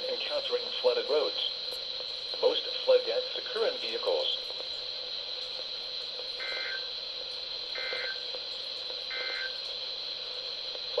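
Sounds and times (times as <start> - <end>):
steady high-pitched whine: 0.0 - 11.0
warbling alert data tones: 6.4 - 6.9, 7.8 - 8.2, 9.1 - 9.6.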